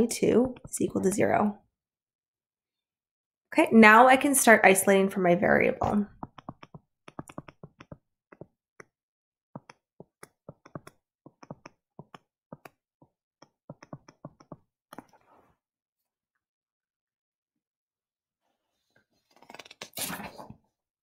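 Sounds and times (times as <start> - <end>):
stylus tapping tablet screen: 0.2 - 1.1, 5.8 - 8.9, 9.6 - 15.1.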